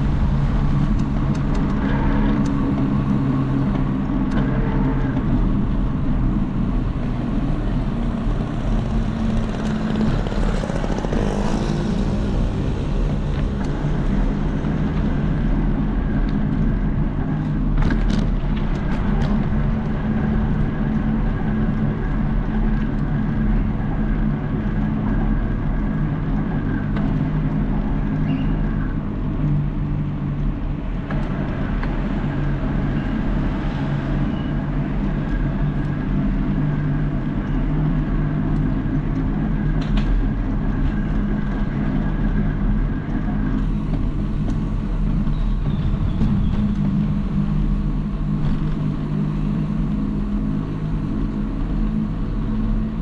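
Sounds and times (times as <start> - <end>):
road traffic: 0.0 - 53.0
vehicle engine running: 0.0 - 53.0
vehicle passing: 6.3 - 15.0.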